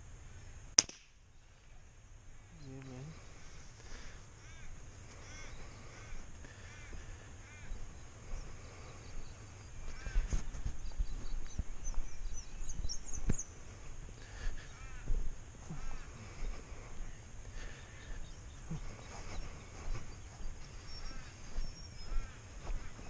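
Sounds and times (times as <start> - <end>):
bird crow-like calls: 3.9 - 13.5, 14.2 - 23.0.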